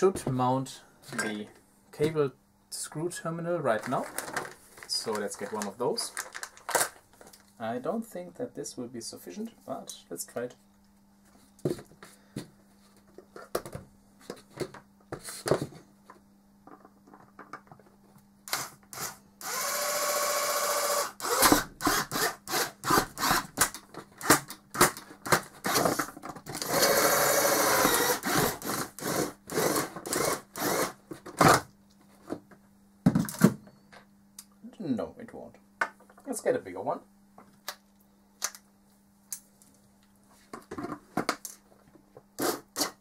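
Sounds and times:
electric drill motor whining: 18.5 - 23.5, 26.6 - 31.0
drill bit rasping plastic: 18.5 - 24.4, 25.3 - 31.0.

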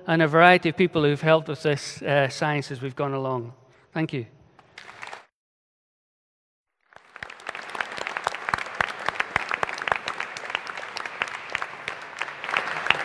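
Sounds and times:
audience applauding: 4.8 - 5.3, 6.8 - 13.0.

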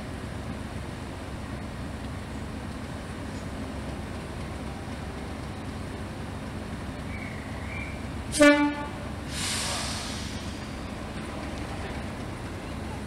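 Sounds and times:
low rumble of locomotive: 0.0 - 13.0
locomotive horn toot: 8.3 - 9.2
hiss: 9.2 - 11.0.

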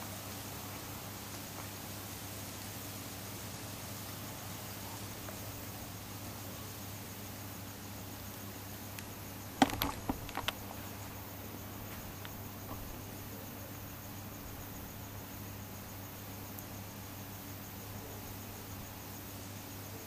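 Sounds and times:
constant hiss and low hum: 0.0 - 20.0
crickets chirping: 0.0 - 20.0
sharp clicks and knocks: 9.6 - 10.7.

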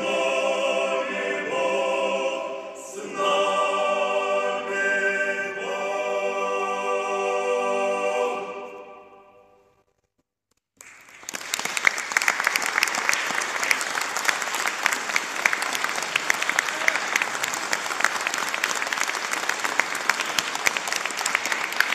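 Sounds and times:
audience applause: 10.8 - 21.9.

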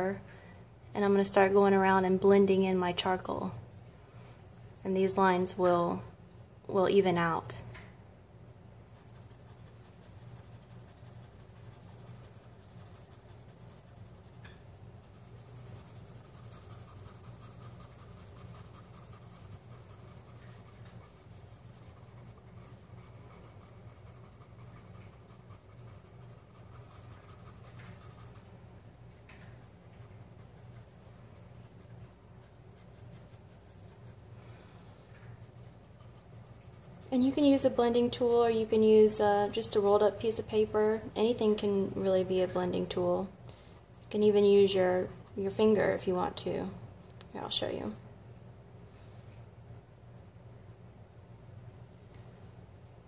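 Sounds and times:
steady low hum: 0.0 - 53.0
scratching on paper: 8.8 - 28.5, 29.6 - 34.3, 35.3 - 39.7, 43.8 - 46.0.

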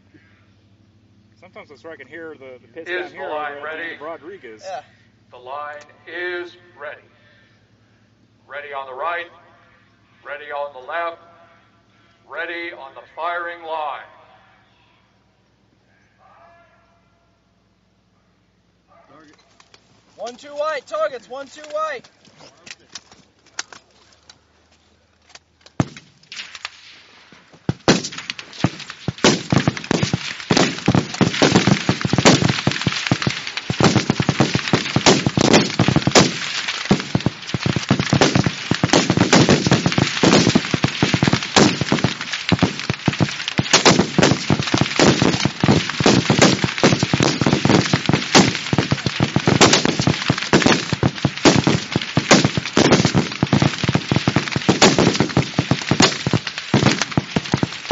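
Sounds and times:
rifles firing: 27.6 - 57.9.

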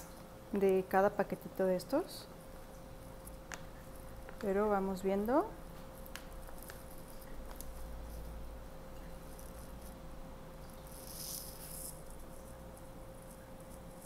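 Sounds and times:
faint steady hum: 0.0 - 14.0
plastic pouch crinkling: 5.3 - 8.3, 10.7 - 14.0
powder pouring rustle: 9.0 - 14.0.

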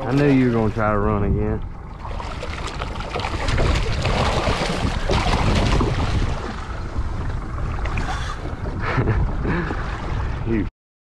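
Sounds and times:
wind on microphone: 0.0 - 10.7
fish thrashing and splashing: 2.0 - 6.8.

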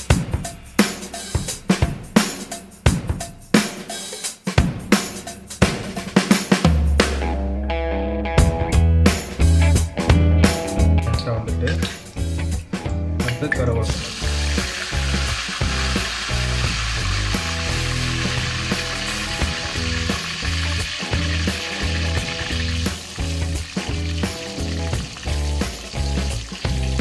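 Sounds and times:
background music with bass line: 0.0 - 27.0
oil sizzling: 11.7 - 27.0.

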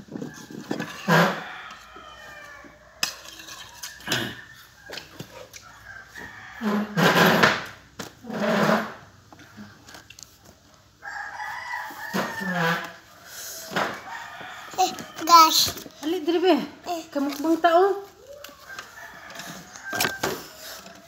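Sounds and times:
rooster crowing: 0.2 - 3.0, 3.7 - 7.0, 11.0 - 15.5, 18.3 - 21.0.

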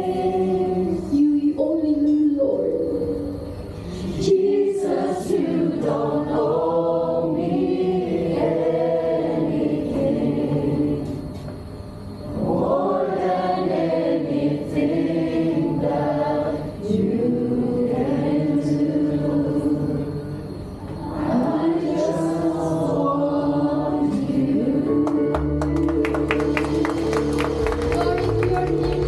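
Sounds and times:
congregation singing: 0.0 - 1.8, 3.7 - 29.0.

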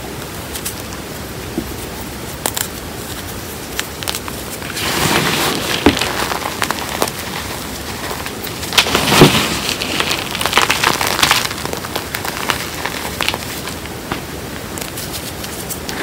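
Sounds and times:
sharp crackles: 1.8 - 16.0
hands crunching chalk powder: 2.3 - 13.9.

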